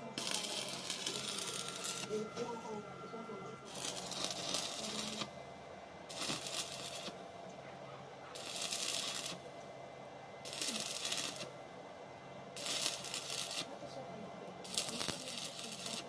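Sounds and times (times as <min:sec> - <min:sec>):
welding arc crackling and sizzling: 0:00.0 - 0:02.8, 0:03.6 - 0:05.4, 0:06.0 - 0:07.2, 0:08.3 - 0:09.6, 0:10.4 - 0:11.6, 0:12.5 - 0:13.8, 0:14.5 - 0:16.0.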